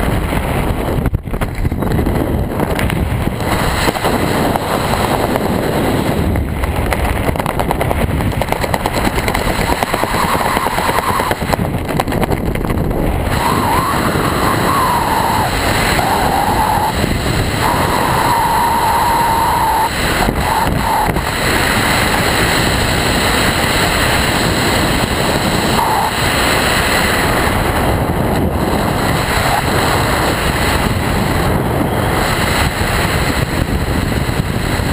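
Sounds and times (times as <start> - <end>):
wind rushing over microphone: 0.0 - 34.9
faint wavering whistle: 9.7 - 11.4, 13.4 - 17.0, 17.6 - 21.1, 25.8 - 26.2.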